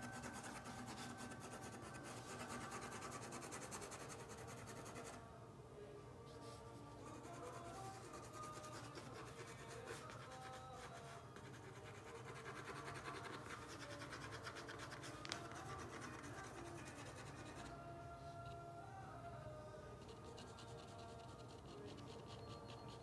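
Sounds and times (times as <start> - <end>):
brush scratching on paper: 0.0 - 5.2, 6.4 - 17.7.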